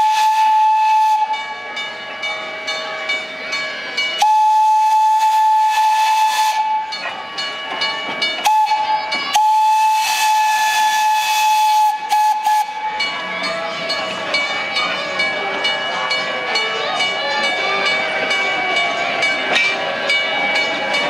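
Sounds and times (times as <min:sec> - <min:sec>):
steam locomotive whistle blasts: 0:00.0 - 0:01.6, 0:04.2 - 0:07.0, 0:08.4 - 0:13.1
steam hissing: 0:08.4 - 0:13.4.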